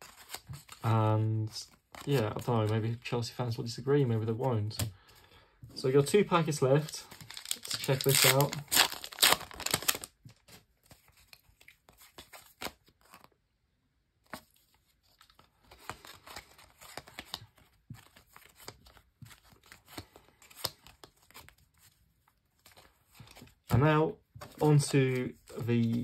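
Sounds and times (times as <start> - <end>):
cards rustling and tapping: 0.0 - 0.8, 1.6 - 3.0, 4.2 - 13.3, 14.2 - 22.0, 22.6 - 26.0
foil pack crinkling: 6.8 - 10.2.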